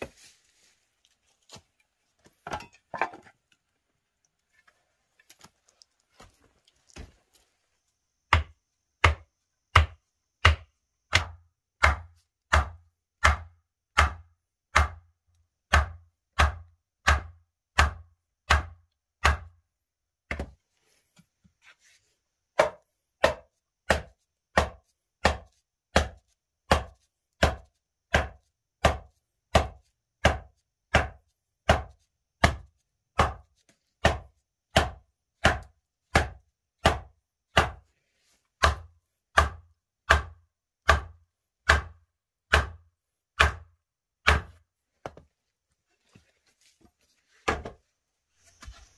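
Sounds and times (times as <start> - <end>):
wood mallet knocking on stakes: 8.3 - 15.1, 15.7 - 19.5, 20.3 - 20.6, 22.6 - 33.4, 34.0 - 37.8, 38.6 - 42.8, 43.4 - 45.2, 47.4 - 47.8.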